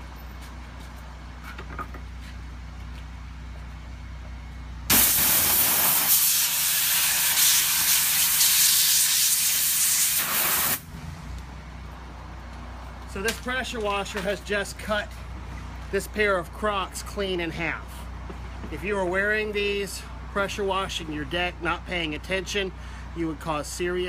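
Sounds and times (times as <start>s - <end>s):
pressure washer jet hissing: 4.9s - 10.8s.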